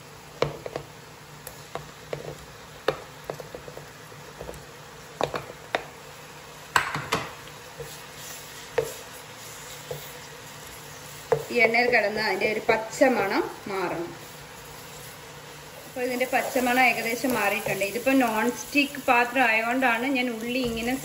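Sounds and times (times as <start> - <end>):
spoon scraping pan: 1.7 - 2.4, 7.0 - 13.2, 14.1 - 21.0.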